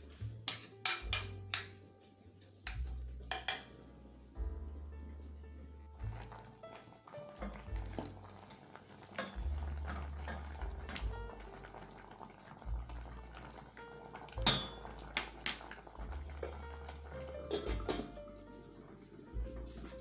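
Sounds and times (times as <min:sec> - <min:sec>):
spoon clinking against metal pot: 0:00.5 - 0:01.7, 0:03.3 - 0:03.8, 0:14.4 - 0:14.8.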